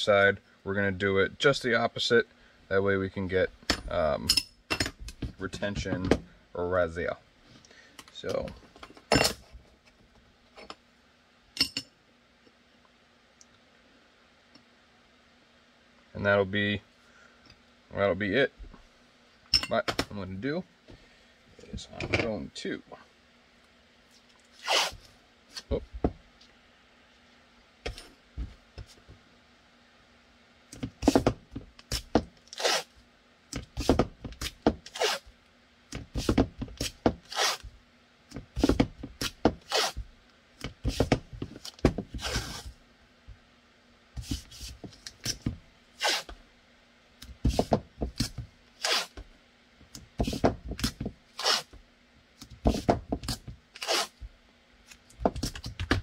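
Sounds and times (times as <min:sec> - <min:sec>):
tape ripping off roll: 0:24.5 - 0:25.1, 0:31.0 - 0:32.9, 0:33.8 - 0:35.3, 0:36.1 - 0:37.7, 0:38.6 - 0:40.0, 0:40.8 - 0:42.7, 0:45.2 - 0:46.4, 0:47.5 - 0:49.2, 0:50.2 - 0:51.8, 0:52.6 - 0:54.2.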